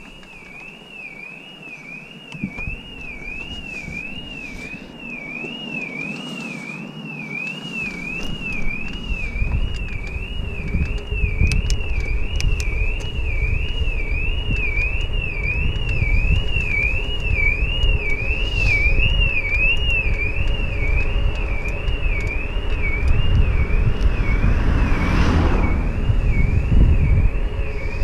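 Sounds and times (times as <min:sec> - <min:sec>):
high warbling tone: 0:00.9 - 0:20.9
wind rumble on microphone: 0:02.3 - 0:28.0.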